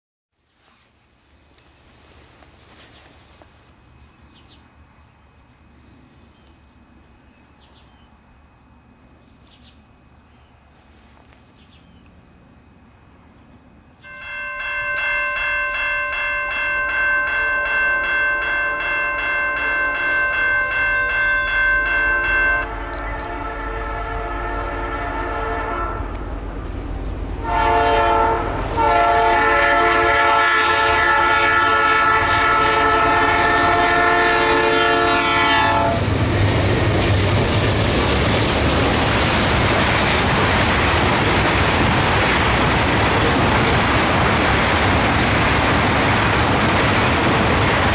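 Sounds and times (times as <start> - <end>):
train wheels rumbling on rails: 14.0 - 47.9
locomotive air horn blasts: 21.6 - 26.2, 27.4 - 36.1.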